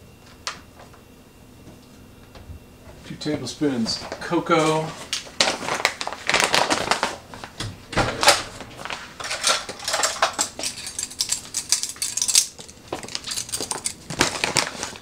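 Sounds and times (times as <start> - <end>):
spoons clattering against metal bowl: 9.2 - 14.0.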